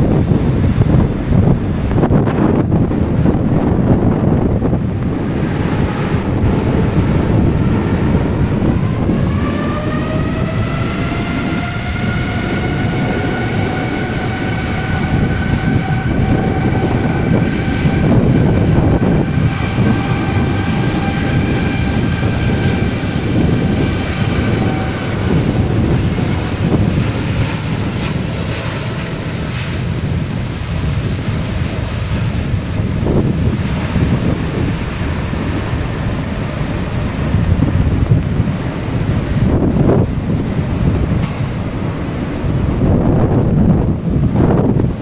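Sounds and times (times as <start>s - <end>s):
jet engines spooling up: 0.0s - 45.0s
rain noise: 0.0s - 45.0s
wind buffeting microphone: 0.0s - 45.0s.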